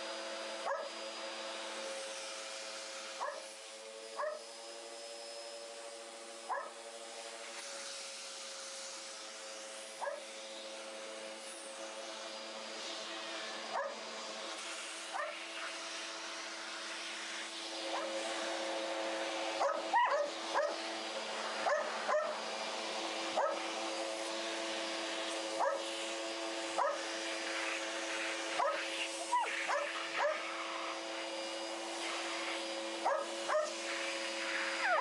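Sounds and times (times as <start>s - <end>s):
vacuum cleaner humming: 0.0s - 35.0s
dog barking: 0.6s - 0.9s, 3.2s - 3.4s, 4.2s - 4.4s, 6.5s - 6.8s, 10.0s - 10.2s, 13.7s - 14.0s, 15.1s - 15.4s, 17.9s - 18.2s, 19.6s - 20.8s, 21.6s - 22.4s, 23.4s - 23.7s, 25.6s - 25.9s, 26.8s - 27.0s, 28.6s - 30.5s, 33.0s - 33.8s.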